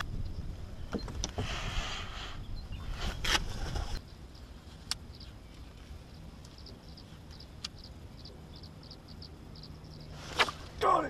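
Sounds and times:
small bird chirping: 2.2s - 3.2s, 4.0s - 10.8s.

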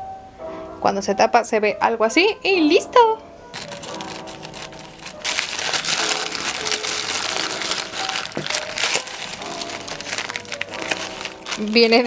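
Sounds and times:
faint background music: 0.0s - 12.0s
plastic mailer crinkling: 3.5s - 12.0s.

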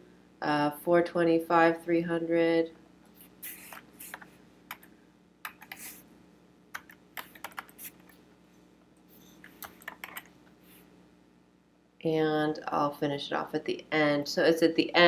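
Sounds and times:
typing on computer keyboard: 6.7s - 7.9s, 9.5s - 10.3s.

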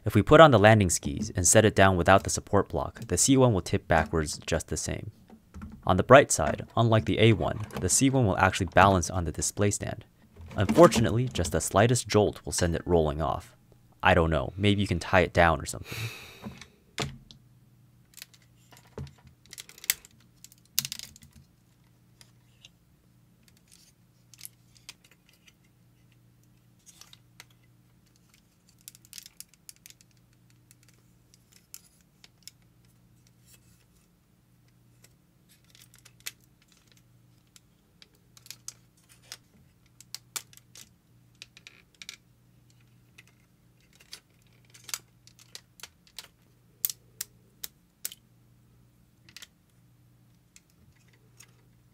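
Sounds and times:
plastic toy parts clicking: 26.8s - 32.7s, 35.5s - 48.2s.

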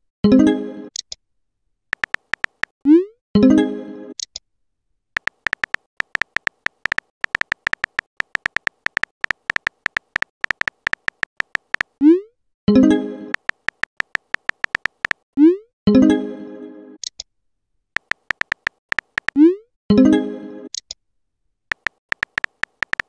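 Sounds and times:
phone keyboard typing clicks: 1.9s - 2.8s, 5.2s - 12.0s, 13.3s - 15.2s, 18.0s - 19.4s, 21.7s - 23.0s.

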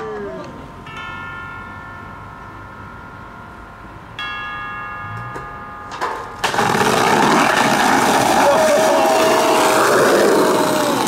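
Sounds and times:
skateboard scraping: 6.4s - 11.0s.

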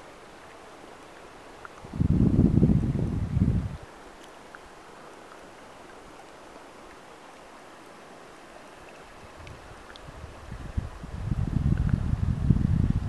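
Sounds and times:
faint outdoor hiss: 0.0s - 13.0s
wind buffeting microphone: 1.8s - 3.9s, 9.2s - 13.0s
light ticks: 8.6s - 10.1s, 11.7s - 12.0s.

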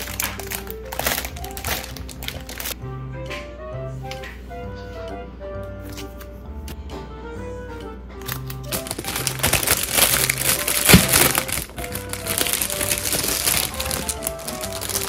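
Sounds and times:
plastic packaging crinkling: 0.0s - 2.8s, 8.3s - 15.0s
background music: 0.0s - 15.0s
sharp crack: 8.3s - 15.0s.

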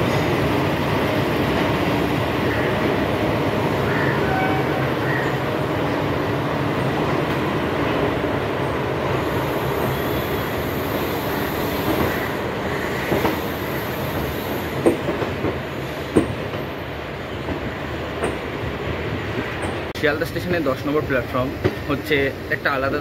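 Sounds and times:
train wheels rumbling on rail: 0.0s - 23.0s
high wheel squeal: 3.9s - 5.4s, 9.4s - 14.7s
wheels clacking over rail joints: 14.6s - 16.8s.

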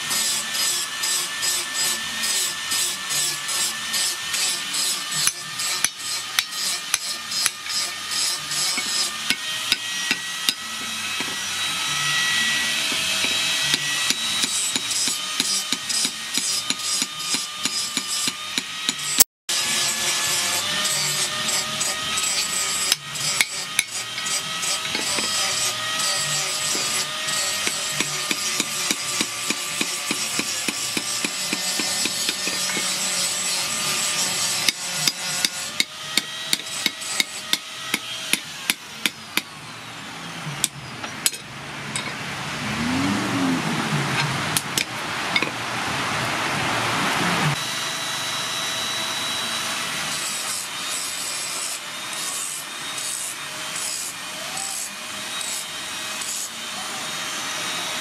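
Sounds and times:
hammer striking metal on anvil: 4.8s - 11.4s, 40.6s - 42.2s.

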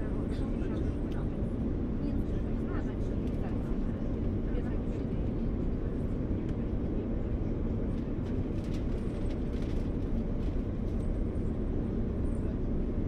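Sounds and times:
subway train rumble: 0.0s - 13.0s.

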